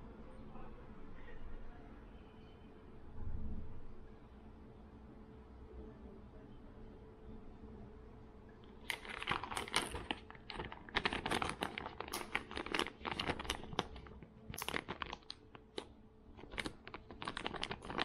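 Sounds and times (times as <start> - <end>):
plastic pouch crinkling: 8.8 - 18.0.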